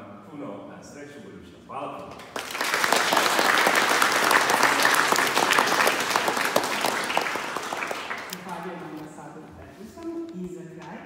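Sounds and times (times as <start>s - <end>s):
audience applauding: 2.2s - 8.7s.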